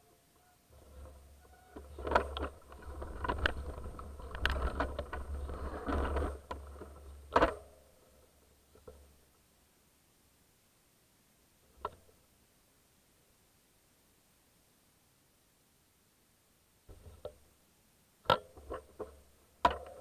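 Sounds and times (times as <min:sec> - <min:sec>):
wind and rolling tyres rumble: 0:00.8 - 0:07.5
bike knocking and rattling: 0:00.8 - 0:07.8, 0:18.3 - 0:20.0.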